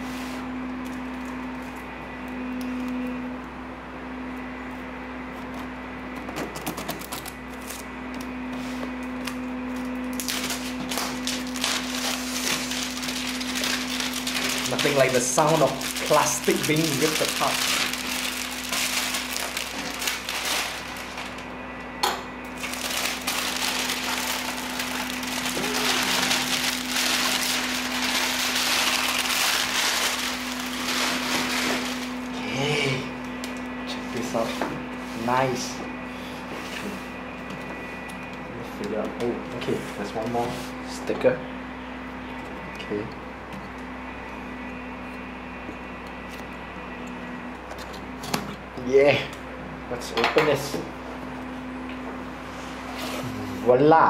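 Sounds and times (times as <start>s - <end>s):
shrink-wrap clicks and scratches: 6.4s - 7.9s, 10.2s - 21.4s
plastic wrap crackling when torn: 6.6s - 8.4s, 9.2s - 21.5s, 22.6s - 32.3s.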